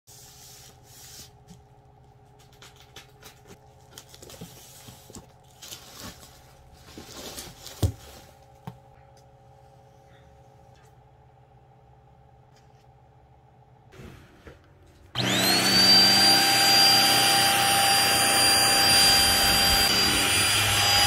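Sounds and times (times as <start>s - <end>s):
faint steady hum: 0.1s - 15.0s.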